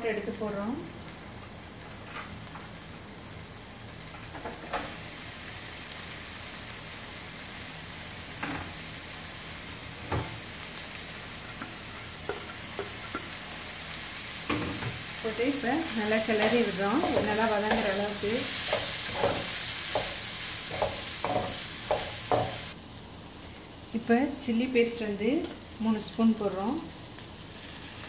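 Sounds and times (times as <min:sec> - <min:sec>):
oil sizzling in a pan: 0:00.0 - 0:28.0
spatula knocking against pan: 0:18.7 - 0:22.7.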